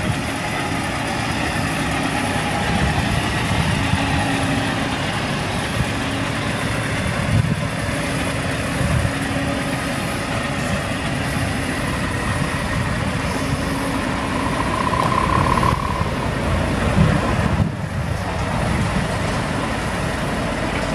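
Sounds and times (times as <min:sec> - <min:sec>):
diesel truck engine idling: 0:00.0 - 0:20.9
short higher tone: 0:13.6 - 0:16.6.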